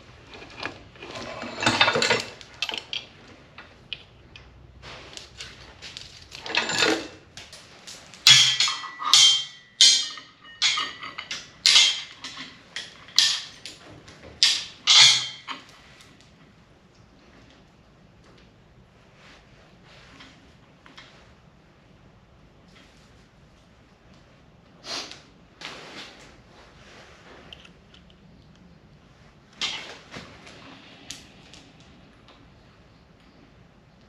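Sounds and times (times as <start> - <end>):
metal chain rattling: 6.0 - 7.2, 8.2 - 13.8, 14.4 - 15.7.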